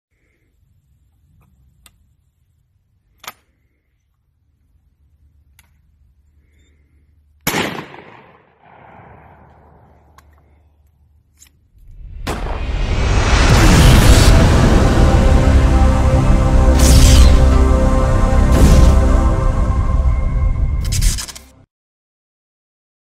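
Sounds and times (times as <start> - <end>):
shotgun shot: 7.4 - 10.0, 12.2 - 12.6.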